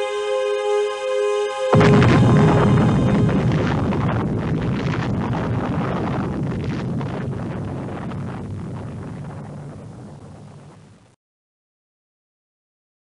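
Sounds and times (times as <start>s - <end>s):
explosion rumbling and crackling: 1.7s - 11.2s.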